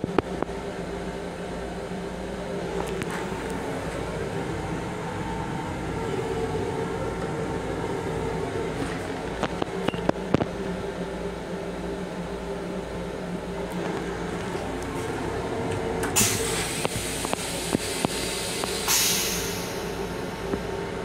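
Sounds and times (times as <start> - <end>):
railcar hum and rumble: 0.0 - 21.0.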